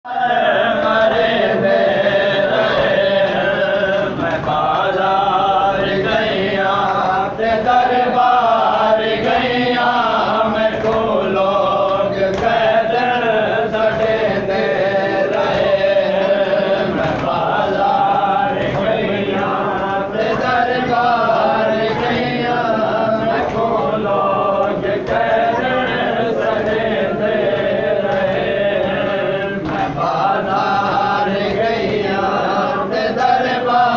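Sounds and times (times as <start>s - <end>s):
men chanting a lament: 0.0s - 33.9s.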